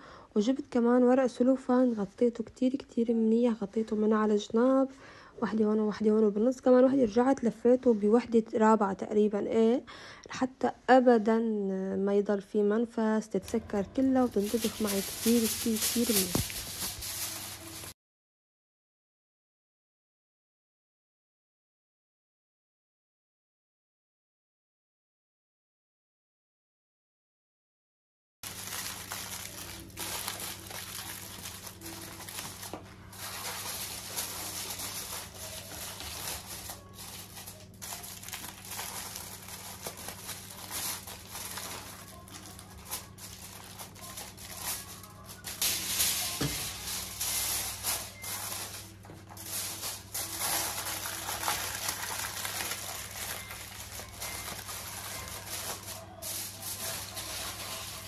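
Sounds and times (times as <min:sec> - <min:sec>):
aluminium foil crinkling: 0:14.0 - 0:18.0, 0:28.4 - 0:58.0.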